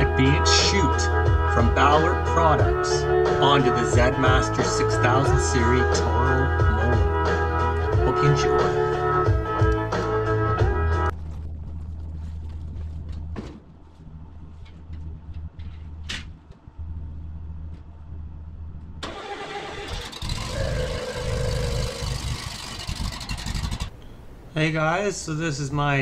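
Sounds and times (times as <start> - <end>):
low steady hum: 10.6 - 26.0
mower engine starting and running: 19.0 - 24.0.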